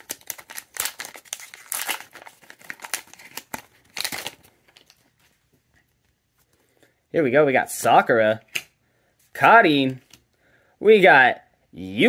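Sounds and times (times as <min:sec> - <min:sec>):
foil wrapper crinkling and tearing: 0:00.0 - 0:05.1.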